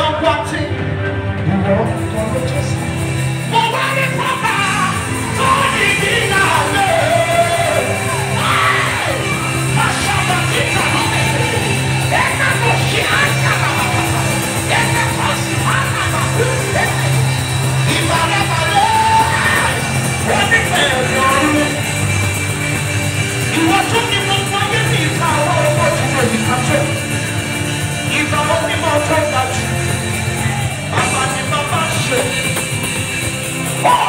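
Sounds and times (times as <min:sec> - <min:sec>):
man singing and shouting: 0:03.5 - 0:21.9, 0:23.5 - 0:27.1, 0:33.8 - 0:34.0.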